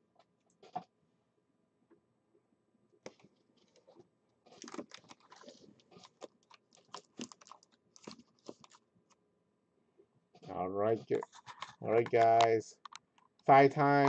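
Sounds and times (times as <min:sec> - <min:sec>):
faint computer keyboard typing: 0:11.0 - 0:14.0.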